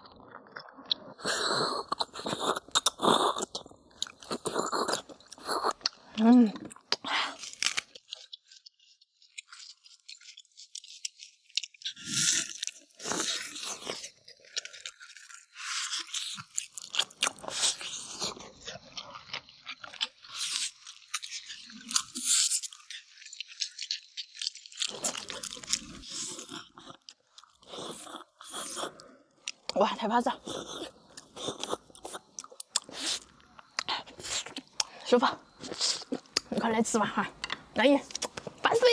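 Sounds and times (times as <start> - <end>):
chewing meat: 0.0 - 38.9
bone crunching: 6.7 - 8.5, 9.2 - 28.2.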